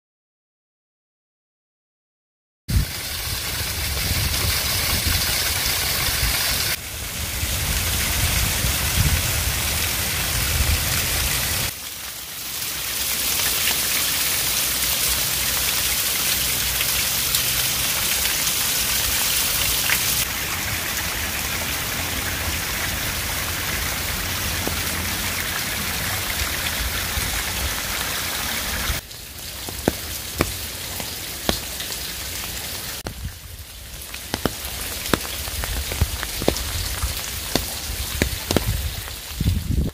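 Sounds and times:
water splashing onto rocks: 2.7 - 6.8, 22.6 - 39.9
water drops dripping: 29.4 - 33.3, 34.0 - 39.2.

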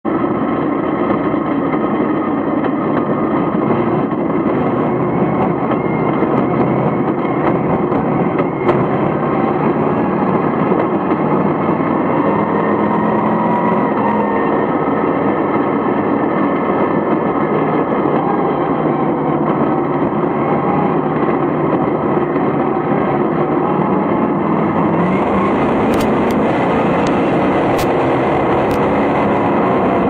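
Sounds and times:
race car engine droning: 0.0 - 30.0.

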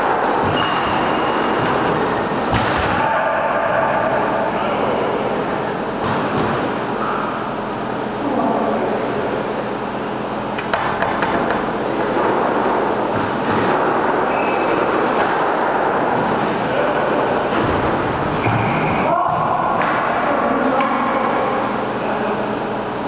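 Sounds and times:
squash ball knocks: 0.1 - 3.0, 10.6 - 14.2.

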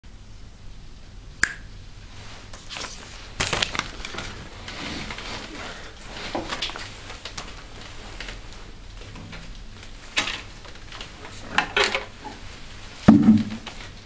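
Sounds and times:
sharp click: 1.4 - 1.7.

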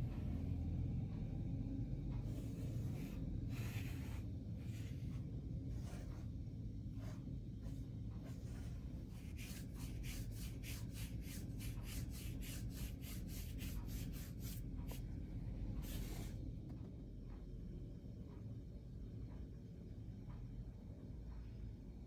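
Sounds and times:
low steady hum: 0.0 - 22.0
paintbrush swishing on paper: 2.2 - 6.3, 6.9 - 15.0.

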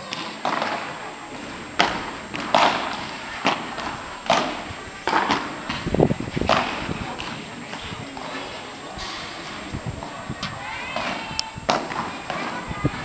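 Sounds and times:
paddles striking ball: 0.4 - 8.2, 11.0 - 12.6.

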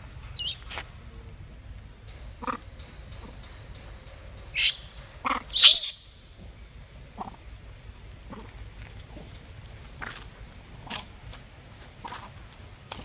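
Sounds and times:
monkeys squealing and screaming: 0.4 - 0.6, 4.5 - 6.1.

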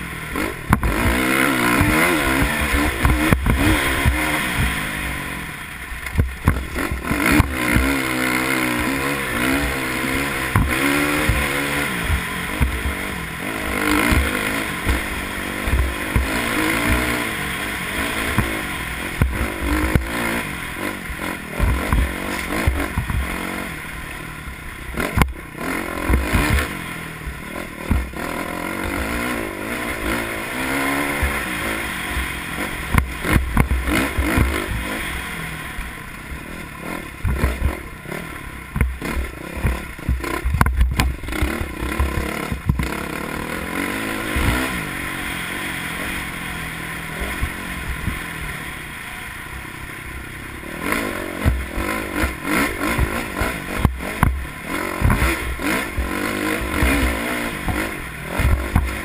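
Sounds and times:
motorcycle engine revving: 0.0 - 59.0
wheels knocking on rough ground: 0.6 - 4.8, 6.0 - 8.0, 9.5 - 17.3, 21.4 - 23.5, 37.2 - 37.8, 38.7 - 43.1, 51.2 - 59.0.

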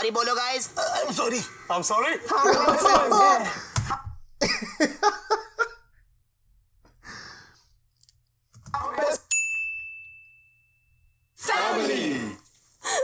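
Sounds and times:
man laughing: 2.3 - 3.6, 4.4 - 5.8
bright ding: 9.3 - 11.2.

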